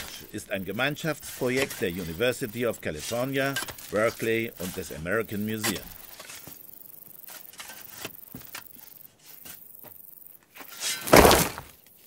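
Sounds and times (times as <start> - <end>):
dirt and gravel spilling: 0.0 - 6.4, 10.7 - 11.8
shovels striking gravelly dirt: 0.0 - 9.8, 10.6 - 11.8.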